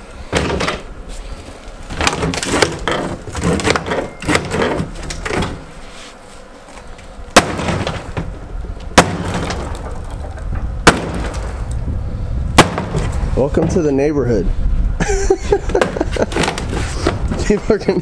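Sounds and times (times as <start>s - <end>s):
deck material crunching and cracking: 1.7s - 5.7s, 6.6s - 11.9s, 12.5s - 13.8s, 15.7s - 17.6s
sledgehammer blows: 7.3s - 14.0s.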